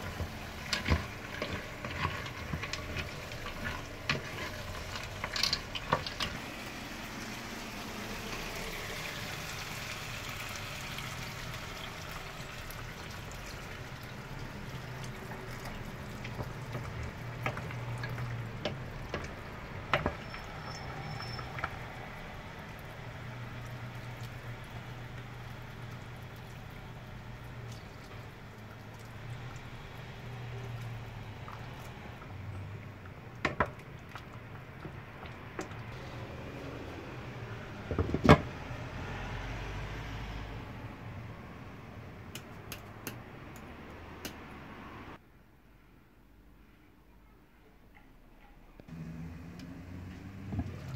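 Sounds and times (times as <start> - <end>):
wooden spoon stirring: 0.0 - 7.3, 14.3 - 36.1
water pouring into pot: 0.0 - 37.0, 50.4 - 50.9.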